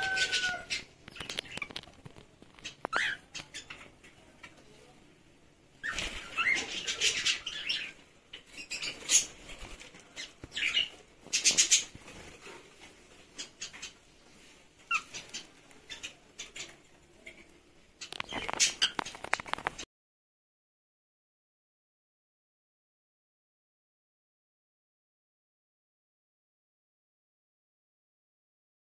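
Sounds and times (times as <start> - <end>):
birds chirping and squawking: 0.0 - 4.2, 5.8 - 19.8
wing flapping: 18.2 - 19.8.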